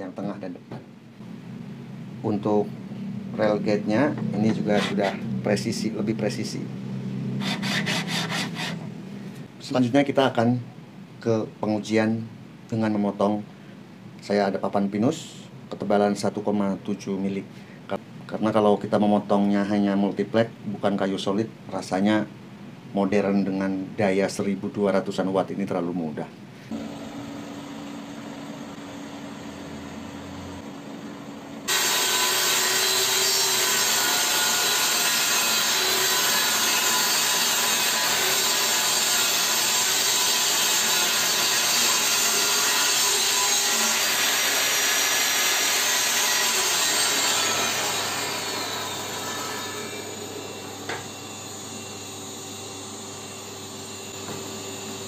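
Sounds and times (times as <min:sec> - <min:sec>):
table saw ripping a board: 0:07.4 - 0:08.8, 0:31.7 - 0:51.2.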